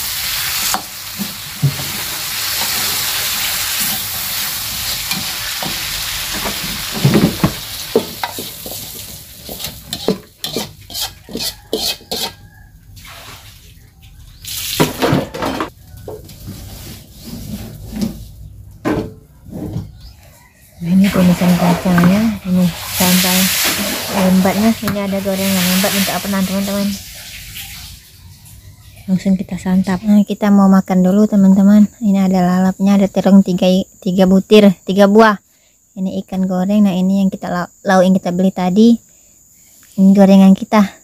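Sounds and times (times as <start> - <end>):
food sizzling in hot oil: 0.0 - 12.4, 21.0 - 28.2
metal spatula scraping a wok: 0.0 - 12.4.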